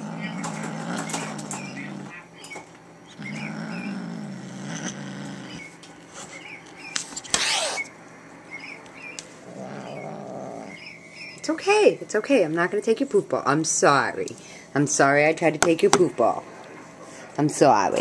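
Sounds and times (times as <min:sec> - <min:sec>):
kitten growling: 0:00.0 - 0:02.2, 0:03.1 - 0:05.7, 0:09.4 - 0:10.8.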